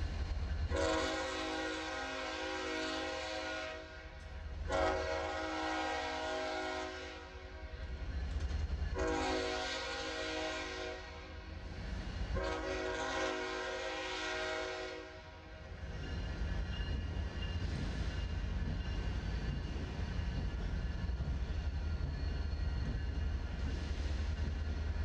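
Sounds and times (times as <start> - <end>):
locomotive air horn blasts: 0.7 - 4.1, 4.7 - 7.5, 9.0 - 11.4, 12.4 - 15.4.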